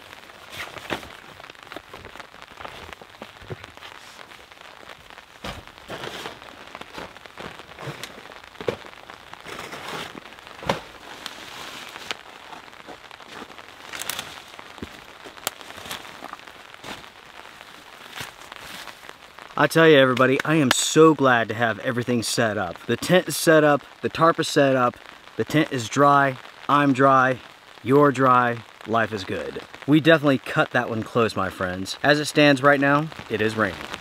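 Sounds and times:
steady rain falling: 0:00.0 - 0:34.0
backpack rustling: 0:05.4 - 0:08.8.

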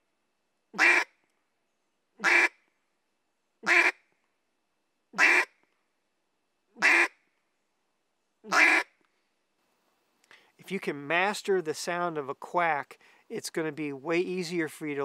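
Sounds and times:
wooden duck call quacks: 0:00.8 - 0:01.1, 0:02.2 - 0:02.6, 0:03.6 - 0:04.0, 0:05.2 - 0:05.6, 0:06.8 - 0:07.2, 0:08.5 - 0:09.0.

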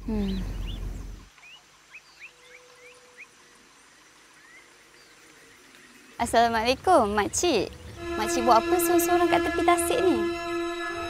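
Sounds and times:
birds chirping: 0:00.0 - 0:11.0
low descending tone: 0:07.9 - 0:11.0.

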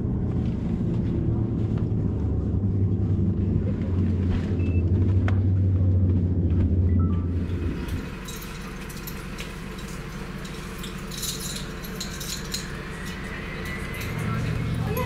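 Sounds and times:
low steady hum: 0:00.0 - 0:15.0
turboprop cabin rumble: 0:00.0 - 0:15.0
light clinks and rattles: 0:07.7 - 0:15.0.

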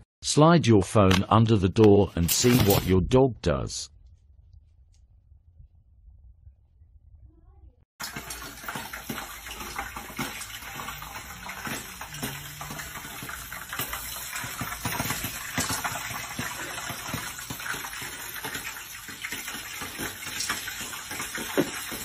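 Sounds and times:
hot oil sizzling: 0:08.0 - 0:22.0
popcorn popping: 0:08.0 - 0:22.0.

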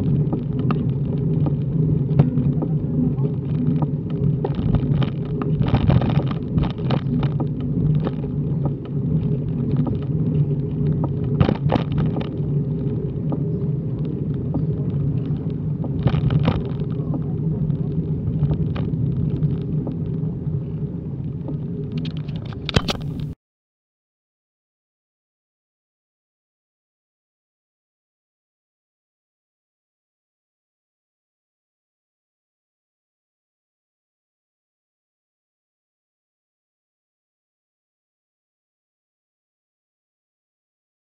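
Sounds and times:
road rumble: 0:00.0 - 0:23.4
wind buffeting microphone: 0:00.0 - 0:23.4
short crackles: 0:22.0 - 0:23.4.

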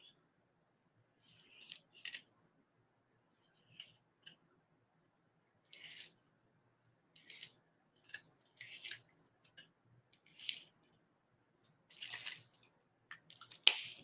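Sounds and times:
marker scratching on plastic: 0:01.2 - 0:02.3, 0:05.7 - 0:06.2, 0:07.2 - 0:09.6, 0:10.2 - 0:10.8, 0:13.5 - 0:14.0.

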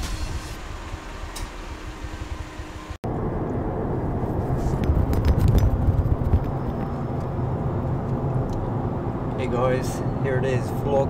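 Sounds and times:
car engine and road rumble: 0:00.0 - 0:11.0.

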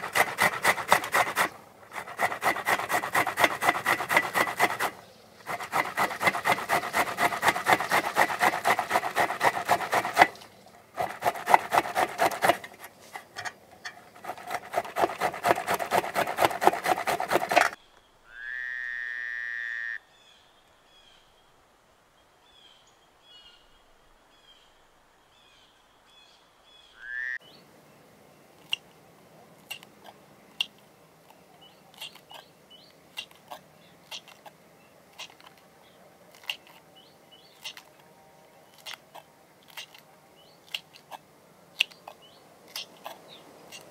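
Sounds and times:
tomatoes rasping on grater: 0:00.0 - 0:17.8, 0:33.2 - 0:34.5, 0:35.2 - 0:35.6, 0:36.3 - 0:36.8, 0:37.6 - 0:37.9
small birds chirping: 0:25.4 - 0:43.9
knife clicks slicing chillies: 0:36.3 - 0:36.8, 0:37.5 - 0:37.9, 0:41.8 - 0:42.1.

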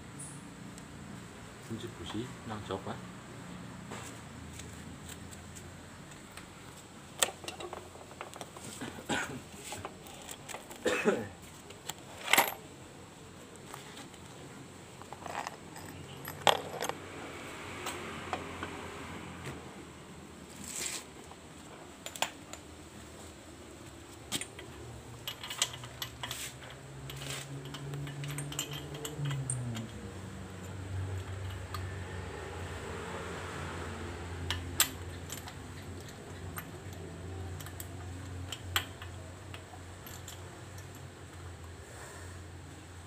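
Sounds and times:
hand tools clinking on metal: 0:24.3 - 0:30.0.

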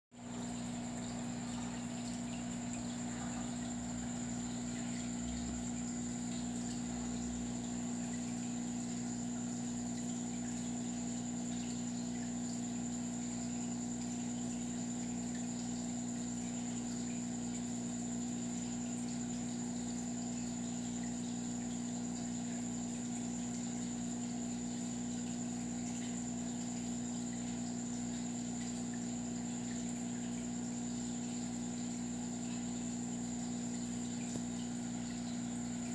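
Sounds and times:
water pump humming: 0:00.1 - 0:35.9.

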